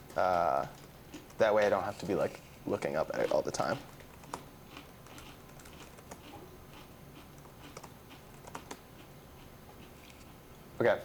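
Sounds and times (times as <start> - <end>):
computer keyboard keystrokes: 5.0 - 6.3, 7.4 - 8.8.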